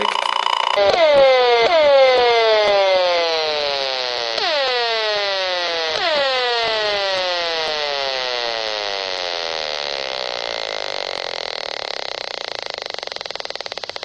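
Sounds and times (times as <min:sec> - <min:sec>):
meter speaker buzz falling in pitch: 0:00.0 - 0:14.0.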